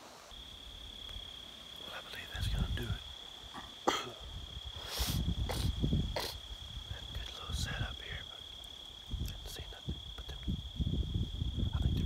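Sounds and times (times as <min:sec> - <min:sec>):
insects trilling: 0:00.0 - 0:12.0
low rumble on microphone: 0:09.1 - 0:12.0.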